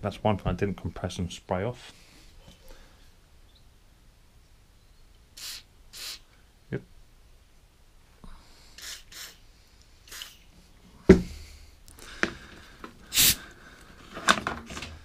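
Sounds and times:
aerosol spray hisses: 5.4s - 6.3s, 8.7s - 9.4s, 10.0s - 10.5s, 13.1s - 13.4s
compressed air blasts: 5.4s - 6.3s, 8.8s - 9.4s, 10.0s - 10.5s, 13.1s - 13.4s.

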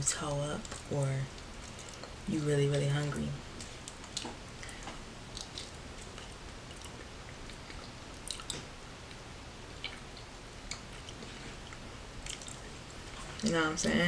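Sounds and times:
person chewing soft food: 0.6s - 2.3s, 3.4s - 13.5s
wet mouth clicks and smacks: 3.6s - 8.7s, 9.8s - 13.4s.

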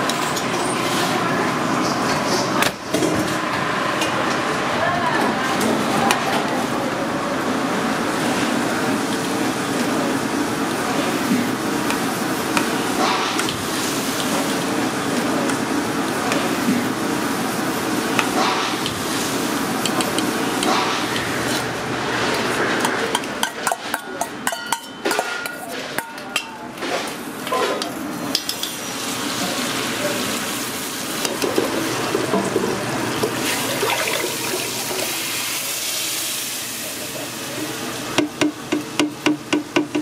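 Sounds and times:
utensils clinking: 22.8s - 26.9s.

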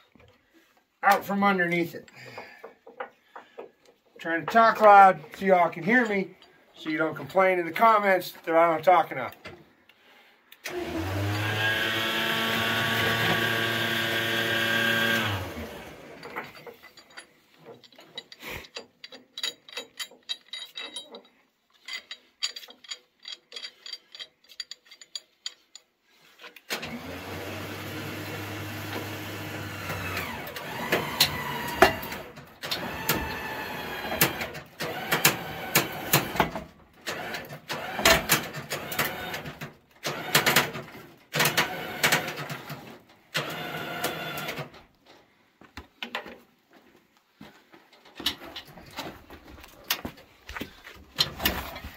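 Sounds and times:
winch motor running: 10.7s - 16.2s, 26.8s - 36.4s
chain and hook clinking: 16.2s - 25.9s.

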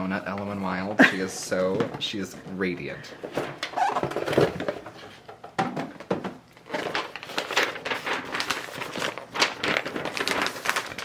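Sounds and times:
tissue paper rustling: 6.6s - 11.0s.

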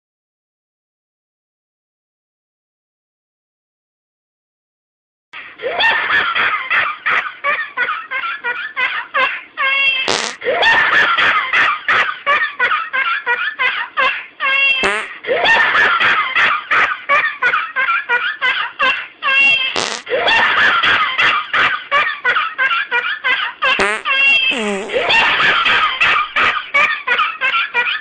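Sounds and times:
fart: 10.1s - 10.4s, 14.8s - 15.1s, 19.8s - 20.1s, 23.8s - 25.1s
person laughing hysterically: 14.8s - 28.0s.

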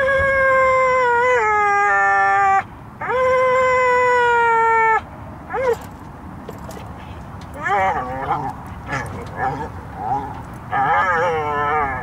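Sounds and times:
dog howling: 7.6s - 12.0s.

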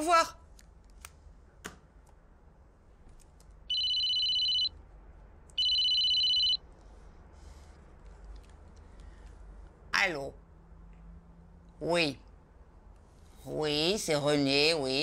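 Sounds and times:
mobile phone ringtone: 3.7s - 4.7s, 5.6s - 6.6s.

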